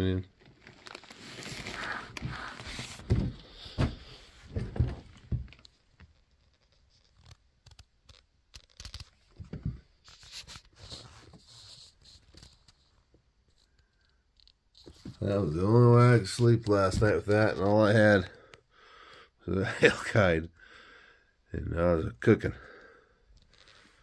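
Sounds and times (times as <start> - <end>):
fabric bag rustling and scraping: 0.5 - 3.1.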